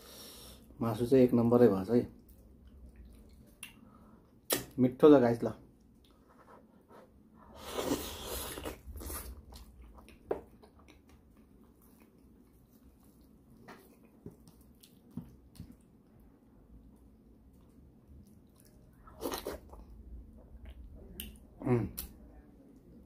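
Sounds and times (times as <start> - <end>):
man chewing meat: 2.2 - 3.9, 7.6 - 22.1
mouth smacks and clicks: 4.4 - 4.8, 20.6 - 22.2.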